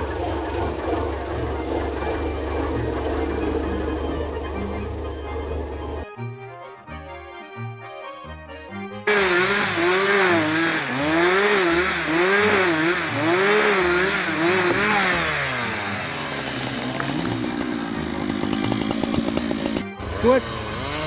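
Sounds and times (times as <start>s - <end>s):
background music: 1.4s - 10.5s
chainsaw cutting log: 9.1s - 21.0s.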